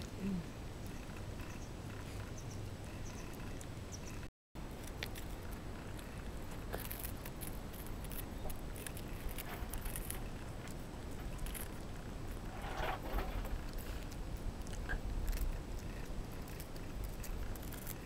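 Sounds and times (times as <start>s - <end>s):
puppy gnawing crunching clicks: 2.8s - 12.4s, 13.6s - 18.0s.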